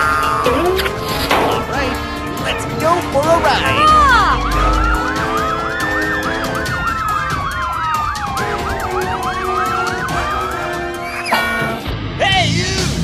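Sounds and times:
simple electronic tune: 0:02.7 - 0:06.8
electronic toy siren warbling: 0:03.6 - 0:11.8.

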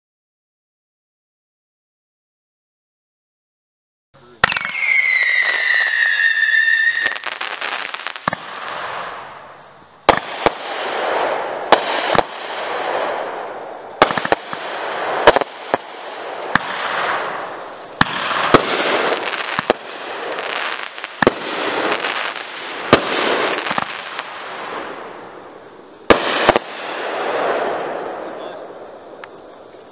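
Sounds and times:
firework shots and bursts: 0:04.4 - 0:29.8
firework hiss: 0:04.4 - 0:29.9.

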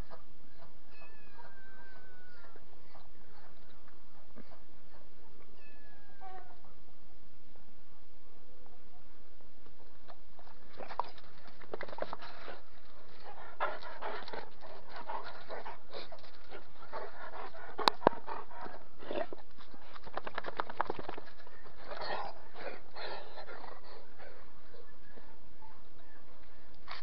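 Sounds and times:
dog panting: 0:11.0 - 0:20.0.

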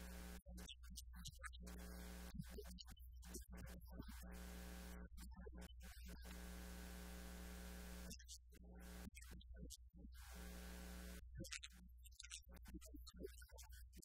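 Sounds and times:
electrical mains hum with hiss: 0:04.2 - 0:05.0, 0:06.2 - 0:08.1, 0:10.2 - 0:11.3.

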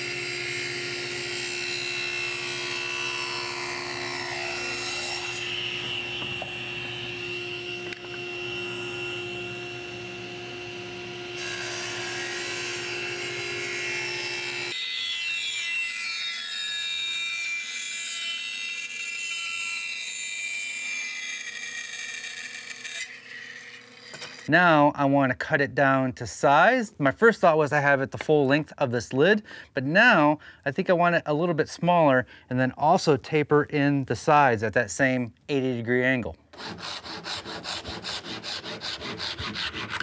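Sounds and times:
bandsaw cutting wood: 0:00.0 - 0:24.5, 0:36.5 - 0:40.0
table saw cutting wood: 0:00.0 - 0:24.5, 0:36.5 - 0:40.0.

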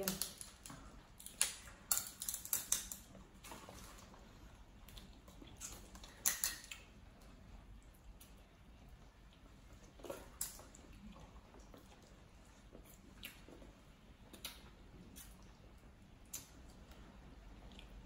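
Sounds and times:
crab shell cracking and clicking: 0:00.0 - 0:03.2, 0:04.9 - 0:06.9.

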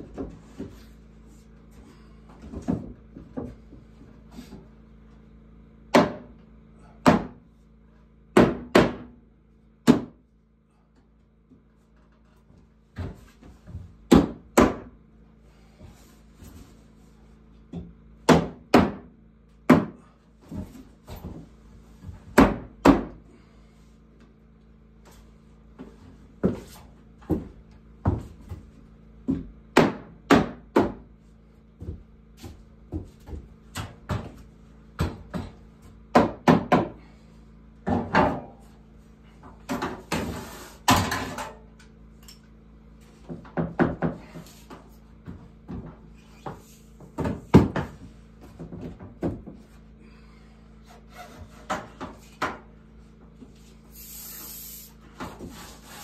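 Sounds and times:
hammer knocking wooden boards: 0:05.9 - 0:06.3, 0:07.0 - 0:07.4, 0:08.4 - 0:09.2, 0:09.8 - 0:10.2, 0:13.0 - 0:14.9, 0:17.8 - 0:19.1, 0:19.7 - 0:20.7, 0:22.3 - 0:23.2, 0:27.3 - 0:31.1, 0:35.0 - 0:37.0, 0:43.2 - 0:44.4, 0:47.0 - 0:49.6
scraping rub: 0:54.0 - 0:56.0.

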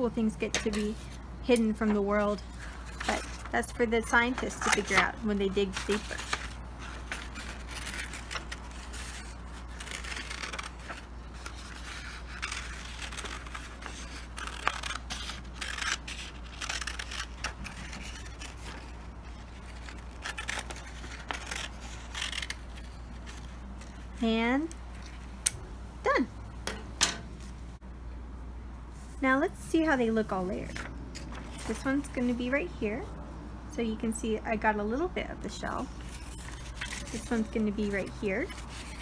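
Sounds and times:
paper rustling: 0:00.6 - 0:24.2, 0:30.2 - 0:32.4, 0:35.9 - 0:39.0
scissors snipping paper: 0:04.3 - 0:18.9, 0:19.6 - 0:23.5.

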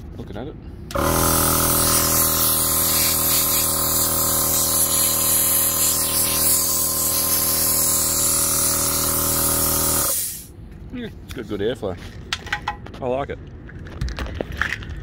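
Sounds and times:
air compressor motor hum: 0:00.9 - 0:10.5
hiss of rushing air: 0:10.0 - 0:10.5.

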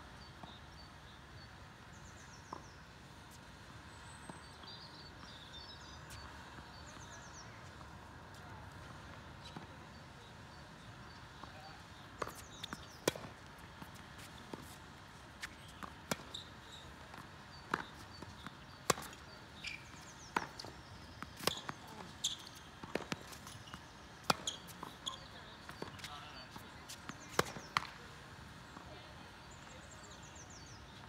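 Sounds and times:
tennis ball hit by rackets: 0:12.2 - 0:14.8, 0:15.4 - 0:19.3, 0:20.2 - 0:26.1, 0:26.9 - 0:28.0.

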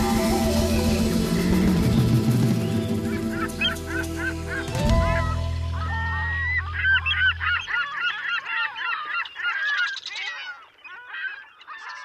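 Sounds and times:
low held music chord: 0:00.0 - 0:07.7
flock of birds calling: 0:00.0 - 0:12.0.

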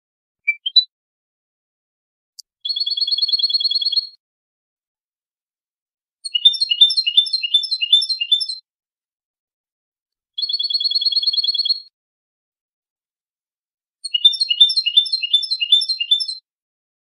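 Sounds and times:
fast high bird trill: 0:06.3 - 0:08.6
goldfinch twittering: 0:06.3 - 0:08.6, 0:14.0 - 0:16.4.

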